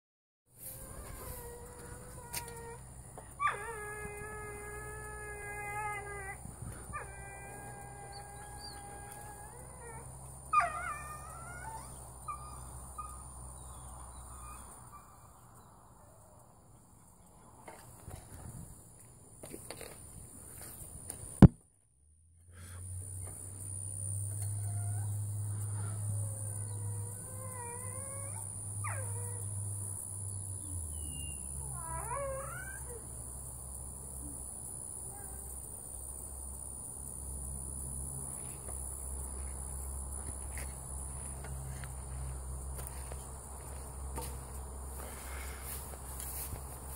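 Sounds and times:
dog moaning and groaning: 0.6 - 15.0, 24.0 - 33.3
crickets chirring: 0.6 - 21.4, 22.5 - 46.9.

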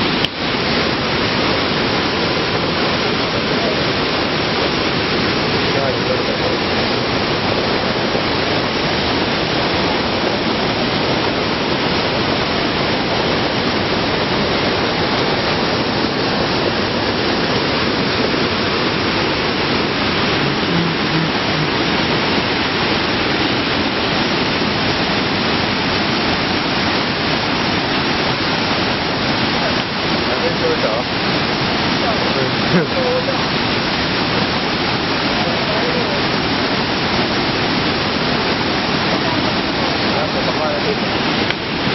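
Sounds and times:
water rushing over rocks: 0.0 - 41.9.

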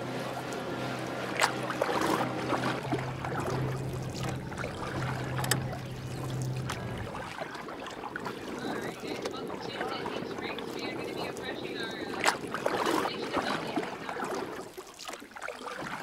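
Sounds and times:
boat motor humming: 0.0 - 14.6
water rushing and splashing: 0.0 - 16.0.

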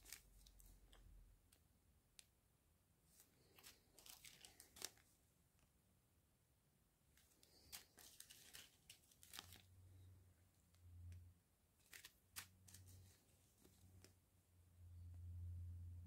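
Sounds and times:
faint low hum: 0.0 - 16.0
plastic bags crinkling: 3.4 - 5.0, 7.2 - 9.7, 11.8 - 13.0.

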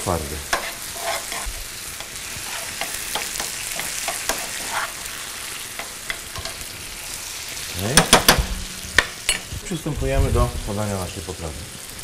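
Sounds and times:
food sizzling in frying pans: 0.0 - 12.0
utensil scraping pan: 0.4 - 9.5.

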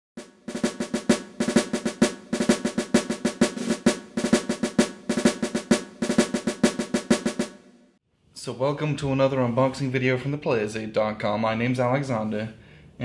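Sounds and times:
snare and drum hits: 0.2 - 7.7.

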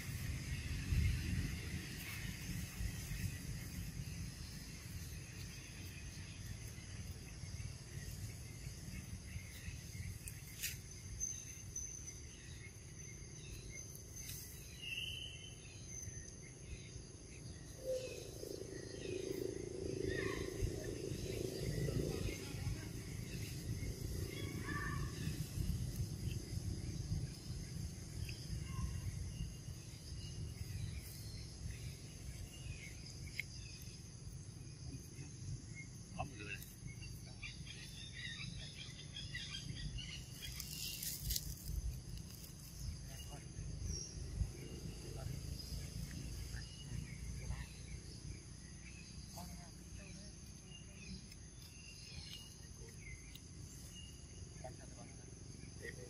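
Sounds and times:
high insect drone: 0.0 - 56.0
low rumble: 18.0 - 28.2.

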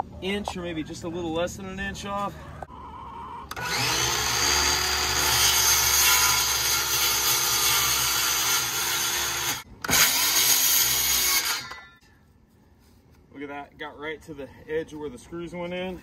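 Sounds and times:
circular saw cutting wood: 3.5 - 11.9.

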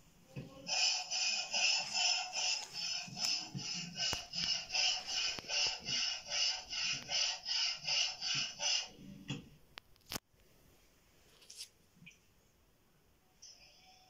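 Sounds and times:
rhythmic repeating noise: 0.5 - 9.1.

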